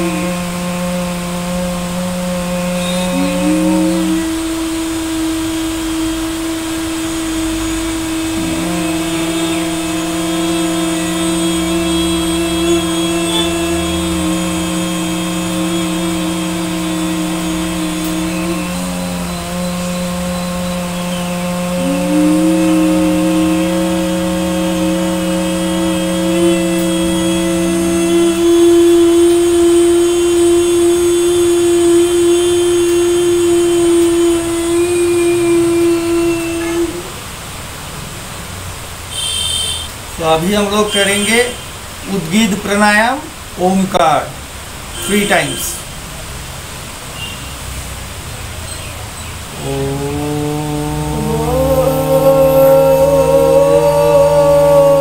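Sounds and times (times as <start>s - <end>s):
man humming: 0.0s - 37.3s, 45.0s - 45.8s, 49.5s - 55.0s
boy humming: 0.0s - 37.4s, 49.5s - 55.0s.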